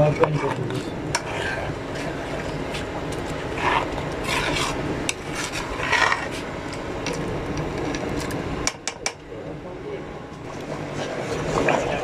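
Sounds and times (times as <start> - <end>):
metal spoon scraping a pot: 0.1 - 2.8, 3.5 - 6.5.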